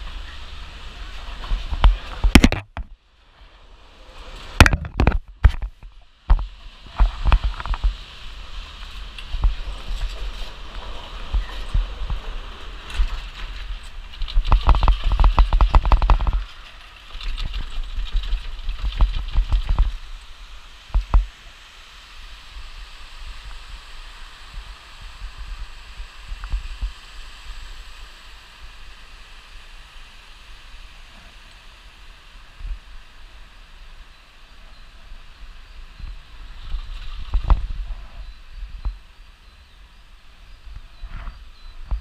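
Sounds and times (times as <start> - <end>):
chairlift clattering over roller sheaves: 0.0 - 2.6, 3.3 - 21.3
rushing mountain stream: 0.0 - 37.9
wind hissing: 0.0 - 42.0.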